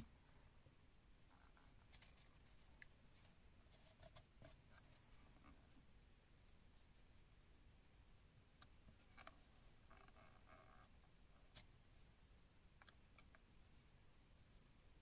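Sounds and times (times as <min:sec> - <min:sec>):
faint light clicks and scratches: 0:01.3 - 0:07.4, 0:08.4 - 0:11.7, 0:12.8 - 0:14.0.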